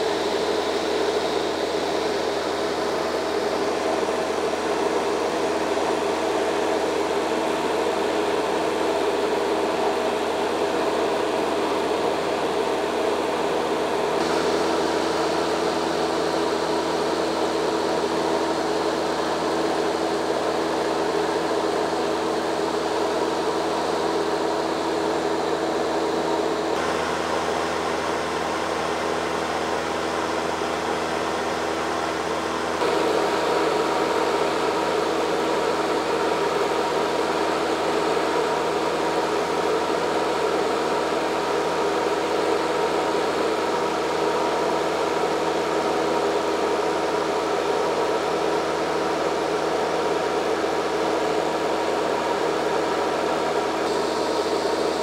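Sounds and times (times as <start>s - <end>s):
propeller plane engine drone: 0.0s - 55.0s.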